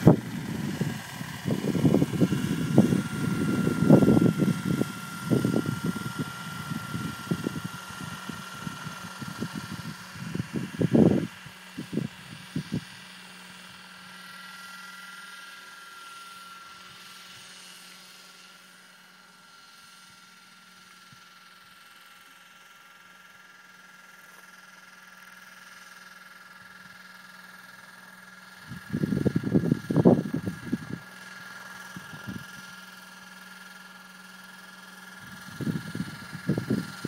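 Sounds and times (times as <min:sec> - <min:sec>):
wind buffeting microphone: 0:00.0 - 0:12.9, 0:28.6 - 0:31.0, 0:32.0 - 0:32.6, 0:35.2 - 0:37.0
model helicopter whine: 0:00.0 - 0:37.0.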